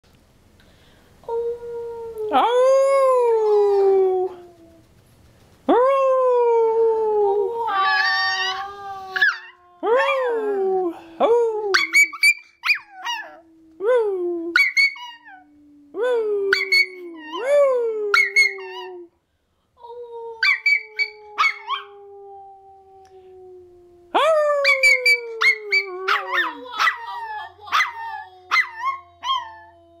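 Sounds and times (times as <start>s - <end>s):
person howling: 5.7s - 12.2s, 19.8s - 30.0s
puppy howling and yipping: 7.7s - 10.2s, 11.8s - 13.4s, 14.6s - 15.4s, 20.4s - 21.9s, 24.6s - 29.8s.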